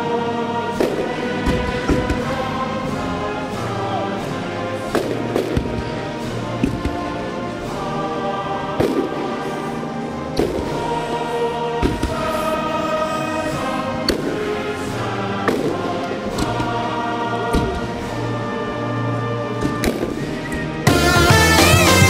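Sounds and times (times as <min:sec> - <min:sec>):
choral music: 0:00.0 - 0:22.0
firework bangs: 0:08.8 - 0:09.4.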